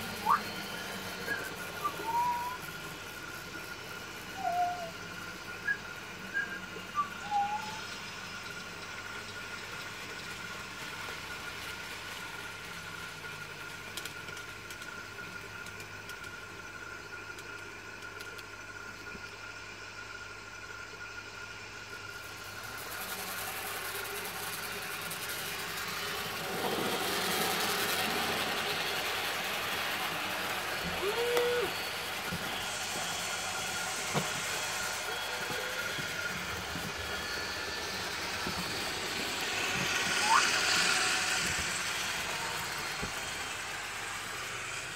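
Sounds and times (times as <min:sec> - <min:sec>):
model train motor whine: 0:00.0 - 0:44.9
wheel and rail noise: 0:00.0 - 0:44.9
short high squeaks: 0:40.0 - 0:41.0.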